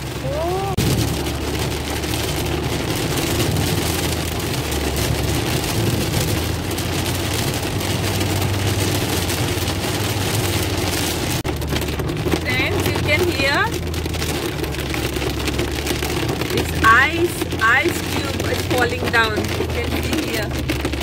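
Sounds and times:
heavy rain on car roof: 0:00.0 - 0:21.0
road and engine rumble: 0:00.0 - 0:21.0.

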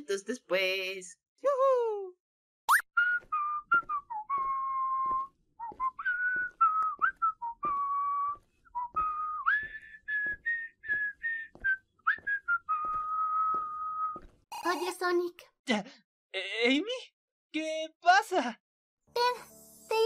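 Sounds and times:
person whistling a tune: 0:03.0 - 0:14.2.

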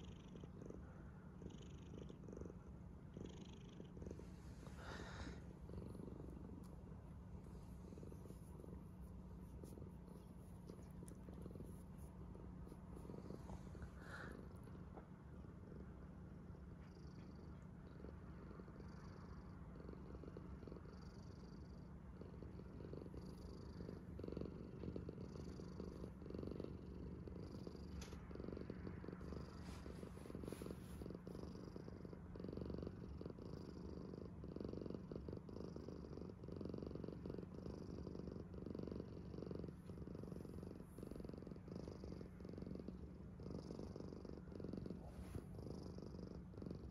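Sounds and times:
cat purring: 0:00.0 - 0:46.9.

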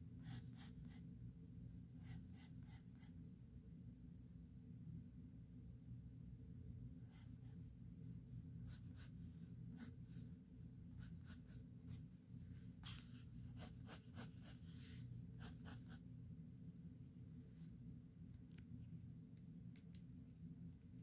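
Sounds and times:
pencil scratching on paper: 0:00.2 - 0:01.0, 0:02.0 - 0:03.2, 0:08.7 - 0:10.3, 0:11.0 - 0:16.0.

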